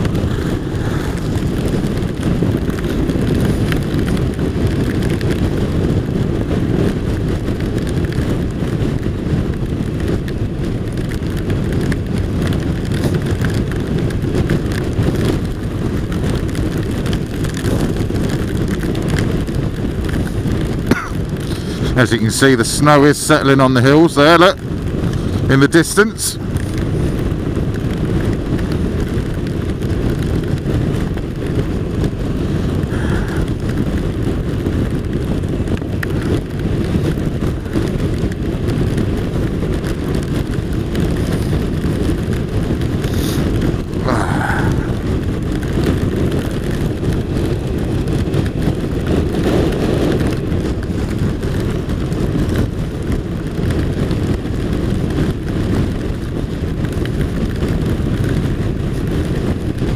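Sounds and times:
motorcycle engine drone: 0.0s - 59.9s
wind rush: 0.0s - 59.9s.

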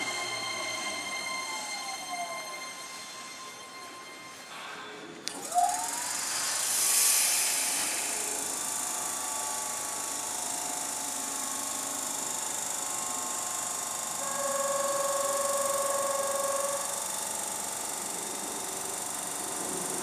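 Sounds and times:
steady tone: 0.0s - 8.8s
electric train machine whine: 0.0s - 20.0s
air hiss: 4.4s - 11.3s.

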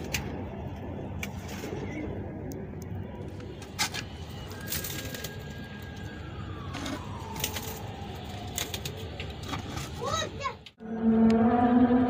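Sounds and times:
faint long falling tone: 10.8s - 12.0s.

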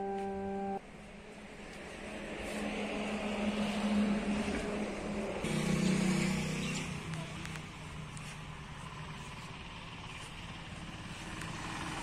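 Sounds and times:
short musical chord: 0.0s - 0.8s
vehicle engine approaching: 1.4s - 12.0s.

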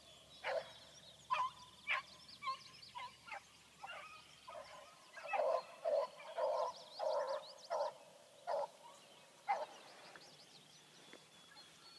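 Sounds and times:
songbirds chirping: 0.0s - 11.9s
beagles baying: 3.8s - 8.8s, 9.5s - 9.8s.

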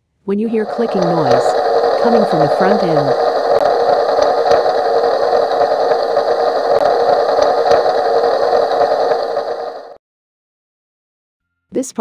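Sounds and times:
car engine and road drone: 0.6s - 10.0s.

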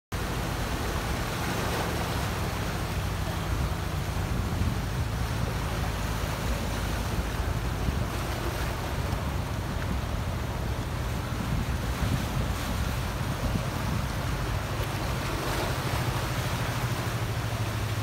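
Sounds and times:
surf breaking on rocks: 0.2s - 18.0s
wind rumbling on microphone: 0.2s - 18.0s.

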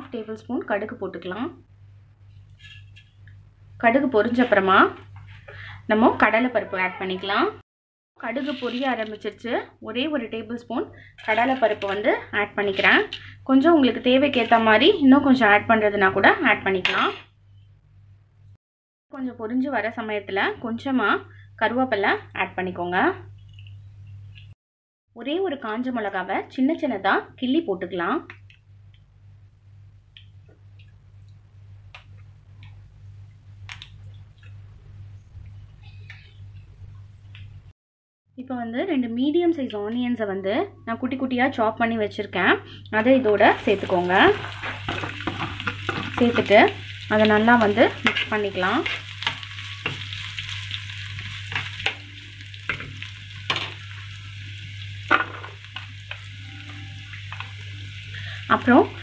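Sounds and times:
spices popping in hot oil: 28.2s - 37.6s, 42.8s - 59.0s.

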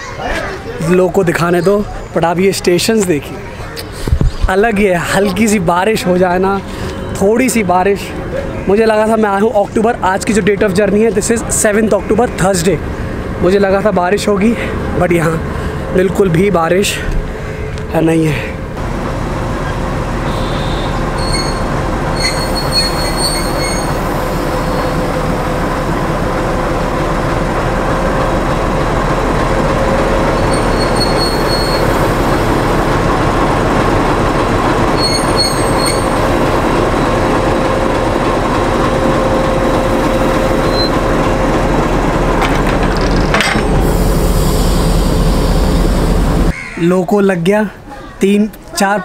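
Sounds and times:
diesel locomotive running: 0.0s - 46.6s
wheel squeals: 20.3s - 25.1s, 30.2s - 32.6s, 34.8s - 37.8s, 39.0s - 41.3s.

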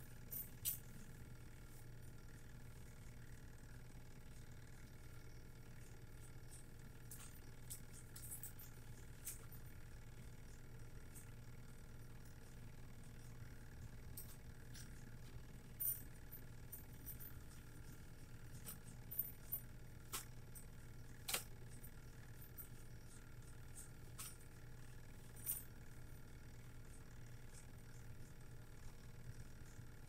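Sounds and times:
steady low hum: 0.0s - 30.0s
light sharp clicks and clinks: 0.2s - 1.2s, 6.2s - 9.7s.

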